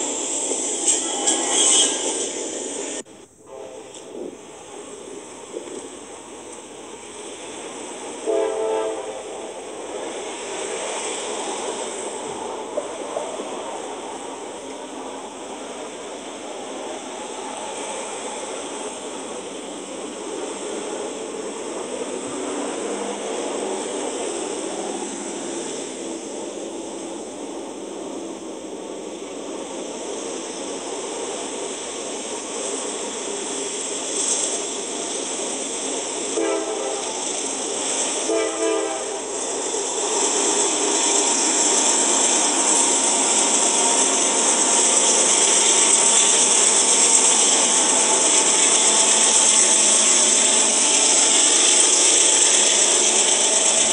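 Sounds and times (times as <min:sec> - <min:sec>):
freight train rolling past: 0:00.0 - 0:53.9
diesel locomotive horn blasts: 0:00.9 - 0:02.1, 0:03.4 - 0:04.2, 0:08.2 - 0:09.6, 0:36.4 - 0:37.6, 0:38.2 - 0:39.6.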